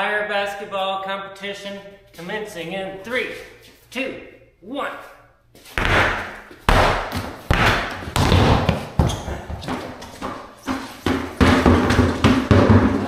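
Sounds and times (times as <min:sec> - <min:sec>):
truck wheels thudding on concrete: 0:05.8 - 0:13.0.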